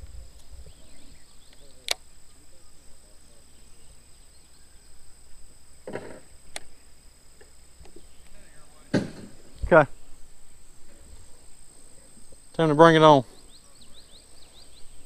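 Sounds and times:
insect buzzing: 0.0 - 15.0
sharp click: 1.5 - 2.0, 6.5 - 6.7.

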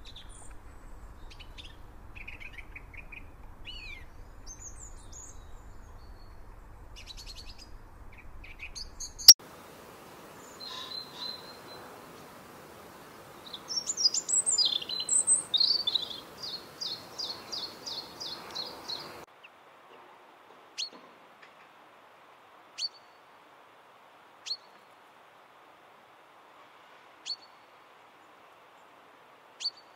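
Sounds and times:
robin singing: 0.0 - 9.4, 10.4 - 11.9, 13.4 - 19.3
faint high bird calls: 10.4 - 11.9.

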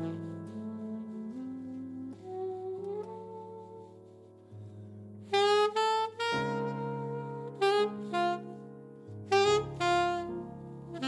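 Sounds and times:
alto saxophone melody: 0.0 - 11.0
piano chords: 0.0 - 11.0.

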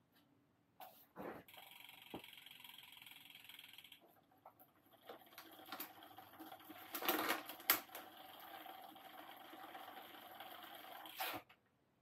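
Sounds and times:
bicycle parts clicking and rattling: 5.0 - 10.5.

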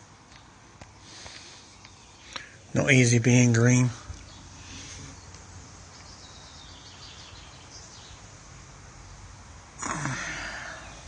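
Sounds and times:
street background noise: 0.0 - 11.0
breathy voice falling in pitch: 9.8 - 11.0.

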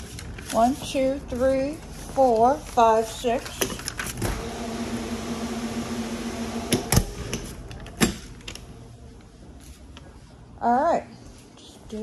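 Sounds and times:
refrigerator humming: 4.1 - 9.2.

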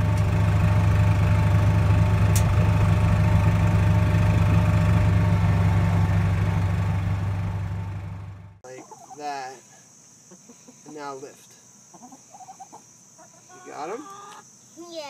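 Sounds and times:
vehicle engine droning: 0.0 - 8.6.

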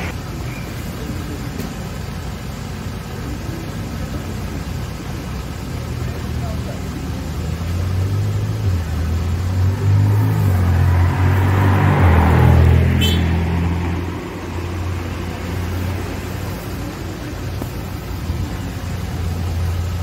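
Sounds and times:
bus idling hum: 0.0 - 11.5, 12.3 - 20.0
car driving past: 7.8 - 16.7.

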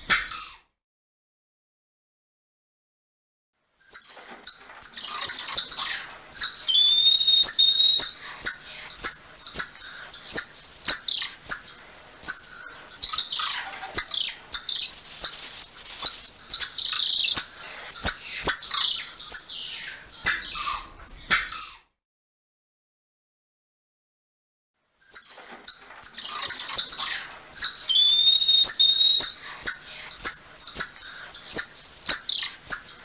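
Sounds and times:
monkeys chirping and trilling: 3.8 - 21.9, 25.0 - 33.0
long level whistles: 6.7 - 8.1, 14.8 - 16.4, 27.9 - 29.3.

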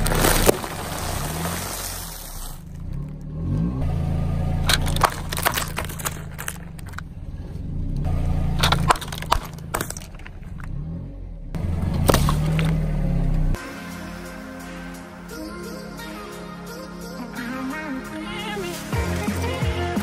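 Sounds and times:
plastic cups bursting under tyre: 0.0 - 2.8, 4.7 - 7.1, 8.6 - 10.6
snack bag crunching under tyre: 0.0 - 3.0, 4.7 - 7.0
car running at low revs: 0.0 - 13.6.

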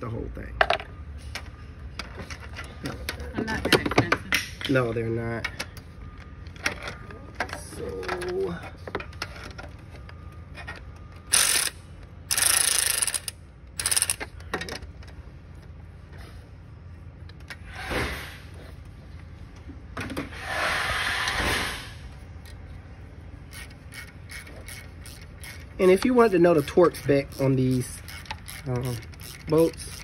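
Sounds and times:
socket ratchet clicking: 11.3 - 14.3, 23.5 - 30.0.

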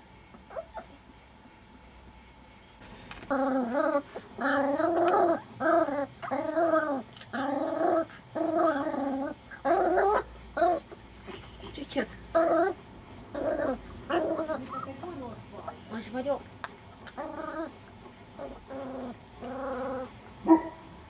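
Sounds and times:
puppy yowling: 0.5 - 0.9.

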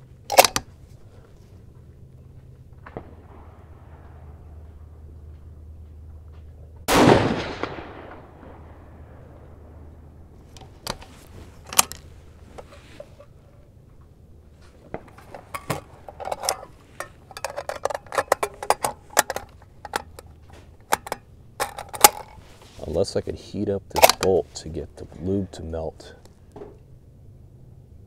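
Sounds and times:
cartridges clinking: 0.3 - 0.7, 14.9 - 22.4, 23.9 - 24.4
rifle bolt clicks: 0.3 - 0.7, 23.9 - 24.4
rifle shot: 6.9 - 9.9.

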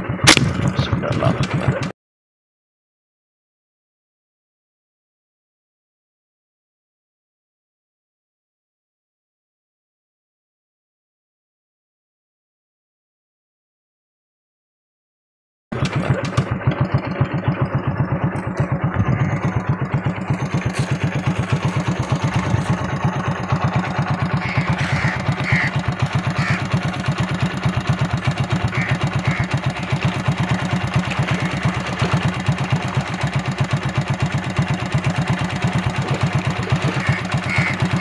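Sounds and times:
engine running with rapid thudding: 0.0 - 2.0, 15.7 - 38.0.

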